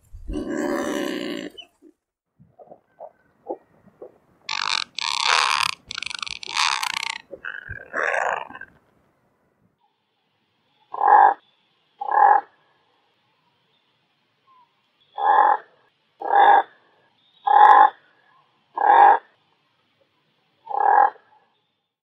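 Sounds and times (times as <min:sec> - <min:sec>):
seabird calling: 0:03.0 - 0:08.7.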